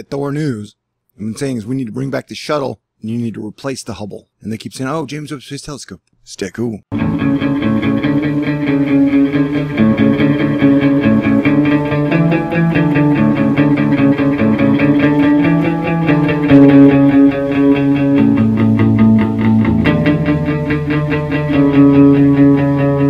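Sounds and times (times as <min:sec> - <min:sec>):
instrumental guitar music: 0:06.9 - 0:23.0.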